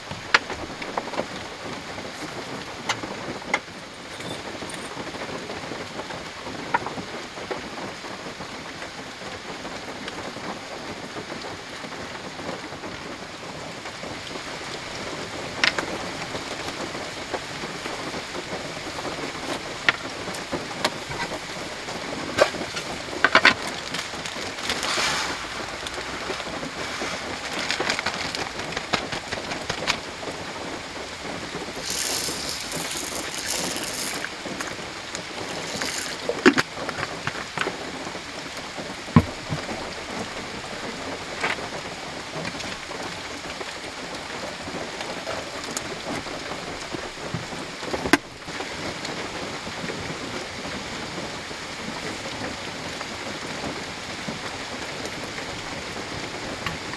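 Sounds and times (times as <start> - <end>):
rain on car body: 0.0 - 56.9
gear clicks and knocks: 15.5 - 24.9, 25.9 - 30.2, 31.6 - 37.9.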